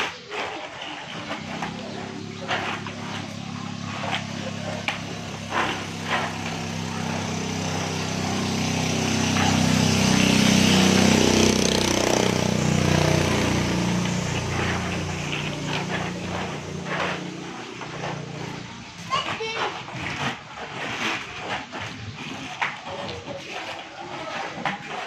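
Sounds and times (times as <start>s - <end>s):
motor vehicle engine passing: 0.0s - 23.2s.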